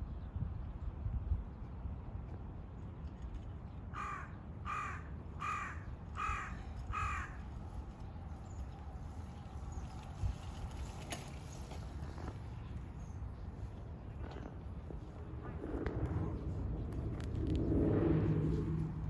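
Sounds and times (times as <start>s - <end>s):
crow cawing: 4.0s - 7.4s.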